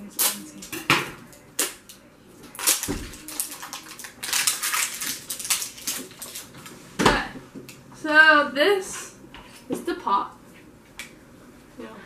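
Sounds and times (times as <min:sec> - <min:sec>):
plastic wrapping crinkling: 0:02.5 - 0:06.7.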